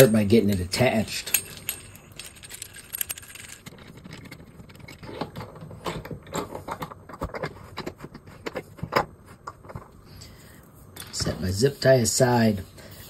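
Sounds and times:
metal boom arm clicks and rattles: 0:00.0 - 0:06.9.

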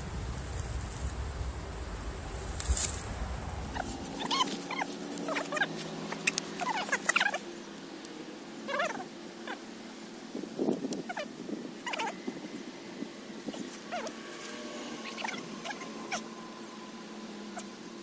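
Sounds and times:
low steady hum: 0:00.0 - 0:18.0
short high animal cries: 0:03.8 - 0:05.7.

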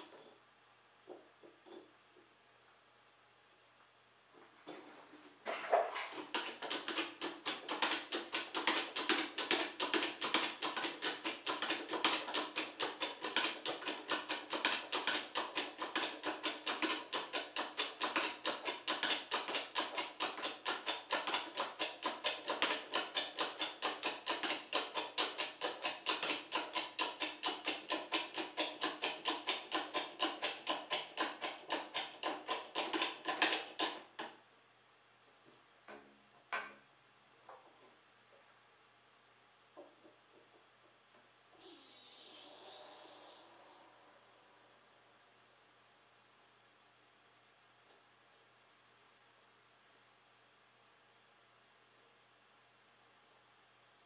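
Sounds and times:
hydraulic jack pump clicking: 0:06.2 - 0:34.3.

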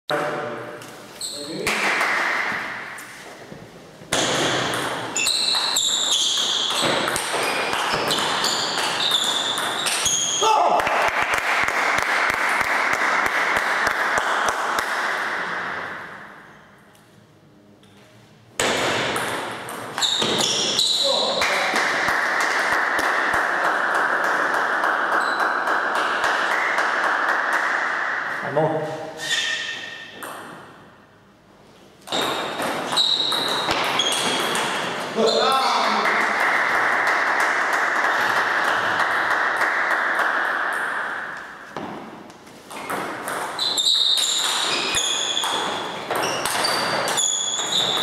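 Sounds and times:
shoes squeaking on wooden floor: 0:01.1 - 0:01.6, 0:05.1 - 0:10.4, 0:20.0 - 0:21.3, 0:29.2 - 0:30.0, 0:32.0 - 0:35.6, 0:43.6 - 0:48.0.

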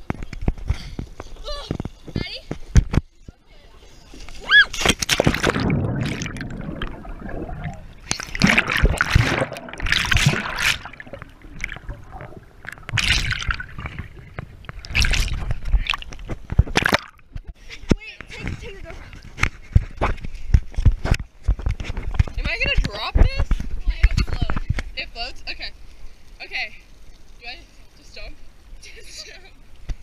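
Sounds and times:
water splashing and gurgling: 0:03.8 - 0:17.5
underwater bubbling: 0:05.0 - 0:17.5.

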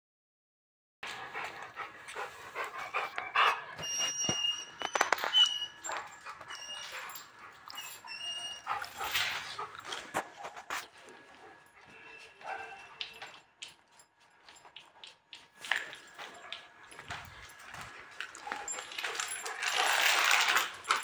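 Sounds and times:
dog panting: 0:01.0 - 0:04.6, 0:05.8 - 0:13.4, 0:14.3 - 0:19.7
high-pitched dog squeaks: 0:03.2 - 0:09.6.

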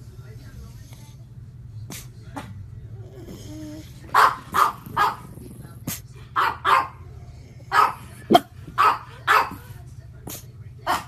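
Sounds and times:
dog barking: 0:04.1 - 0:05.5, 0:06.3 - 0:09.8.

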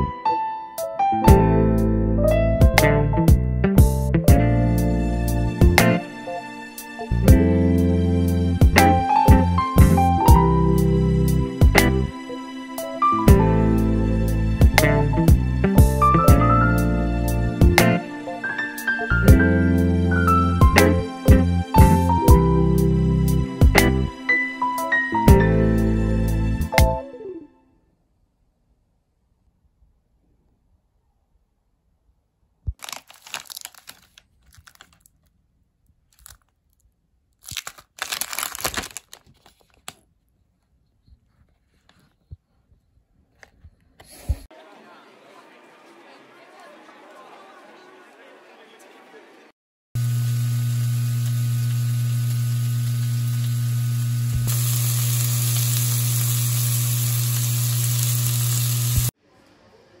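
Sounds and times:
plastic snack wrappers crinkling: 0:32.7 - 0:40.2
food sizzling in frying pan: 0:50.0 - 0:59.1
low electrical hum: 0:50.0 - 0:59.8.

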